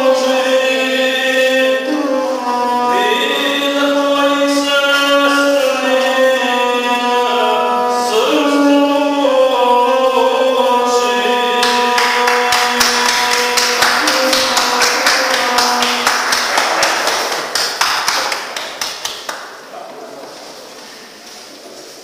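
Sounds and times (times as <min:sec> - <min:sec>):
chanted singing: 0:00.0 - 0:17.6
sharp claps: 0:11.6 - 0:19.6.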